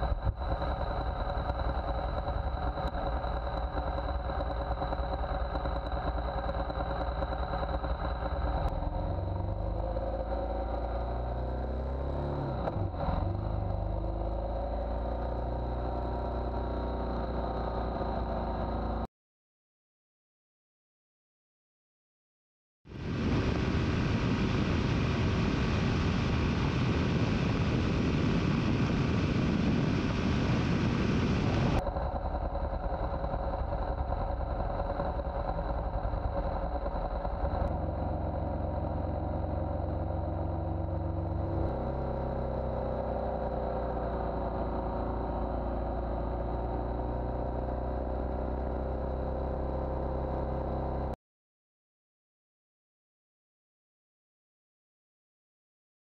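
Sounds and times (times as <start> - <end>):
motorcycle engine running: 0.0 - 19.1, 25.6 - 51.2
heavy wind rush: 23.0 - 37.8.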